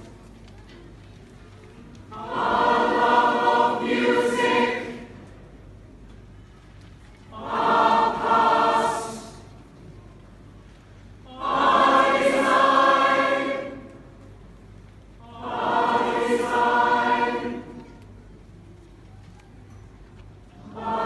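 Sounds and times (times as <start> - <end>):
large choir singing held chords: 2.1 - 5.4, 7.3 - 9.7, 11.2 - 14.4, 15.2 - 18.1, 20.6 - 21.0.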